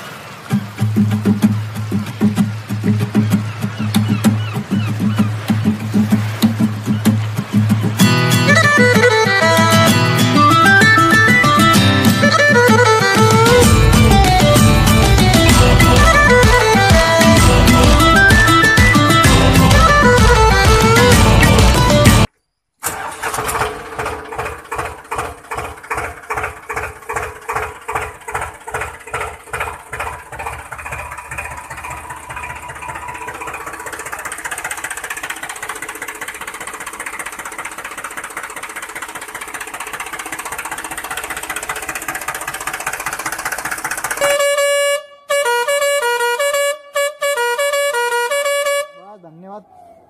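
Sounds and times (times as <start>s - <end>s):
pulsing engine-like sound: 0.0s - 22.3s, 23.2s - 44.7s
musical truck horn playing a tune: 8.1s - 22.3s, 44.0s - 49.4s.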